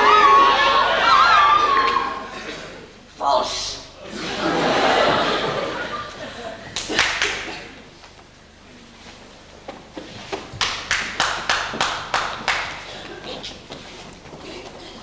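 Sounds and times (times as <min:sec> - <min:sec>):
sharp hand slaps in a hall: 0:06.7 - 0:07.8, 0:10.6 - 0:12.9.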